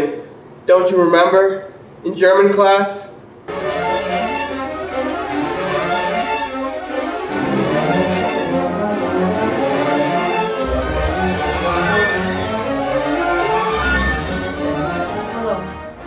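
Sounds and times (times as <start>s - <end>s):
brass playing: 3.5s - 16.0s
strings playing: 3.5s - 16.0s
deep bass: 10.6s - 13.1s.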